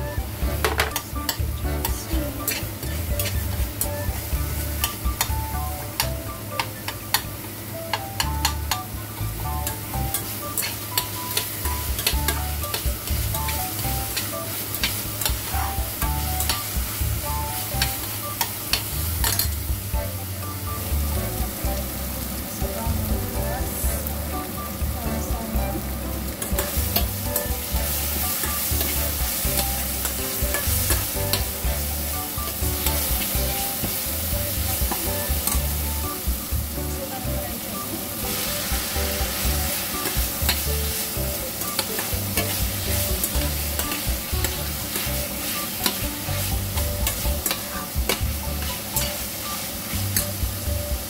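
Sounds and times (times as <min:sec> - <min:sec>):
metal spatula scraping a pan: 0:00.0 - 0:05.4, 0:09.6 - 0:16.8, 0:26.4 - 0:35.8, 0:38.2 - 0:50.4
spice paste sizzling in oil: 0:00.0 - 0:51.0.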